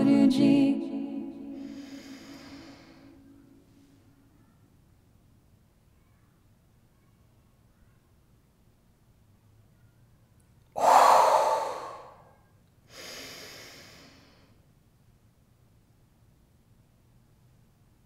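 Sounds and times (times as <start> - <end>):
woman breathing deeply: 1.5 - 3.4, 10.8 - 12.3, 12.9 - 14.6.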